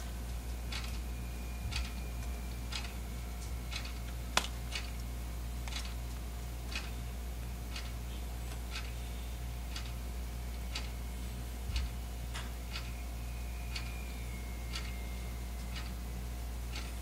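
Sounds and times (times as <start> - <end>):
low steady hum: 0.0 - 17.0
clock ticking: 9.7 - 10.0, 10.7 - 11.0, 15.6 - 15.9.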